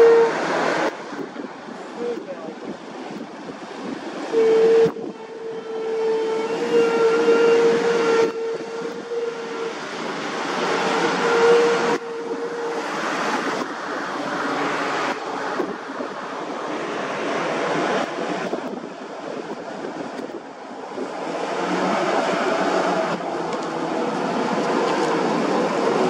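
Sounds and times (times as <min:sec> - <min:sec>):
wind noise: 0:00.0 - 0:26.0
vehicle engines: 0:09.7 - 0:26.0.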